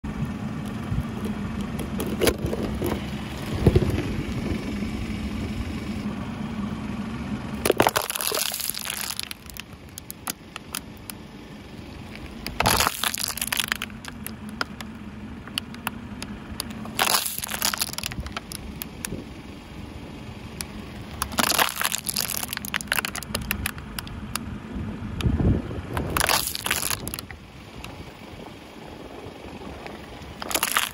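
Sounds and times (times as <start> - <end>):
low engine hum: 0.0 - 30.9
plastic bottle crunching: 7.6 - 10.4, 12.4 - 14.8, 16.9 - 18.9, 21.2 - 23.8, 26.0 - 27.3, 30.4 - 30.9.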